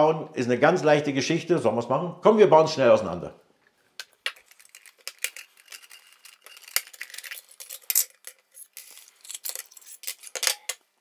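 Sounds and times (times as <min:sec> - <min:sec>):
plastic parts clicking and rattling: 0:04.0 - 0:10.9
small parts set on stone countertop: 0:04.0 - 0:11.0.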